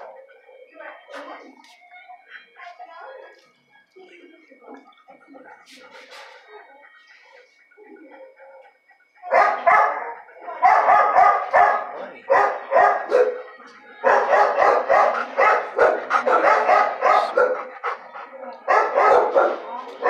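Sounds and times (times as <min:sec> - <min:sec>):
dog barking loudly: 0:09.3 - 0:13.5, 0:14.1 - 0:18.1, 0:18.7 - 0:19.7.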